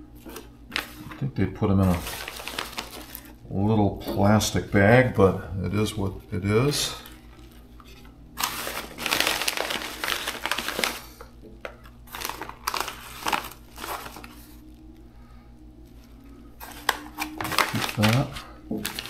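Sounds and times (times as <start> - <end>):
paper envelope crinkling: 0.2 - 3.4, 6.9 - 14.8, 15.8 - 19.0.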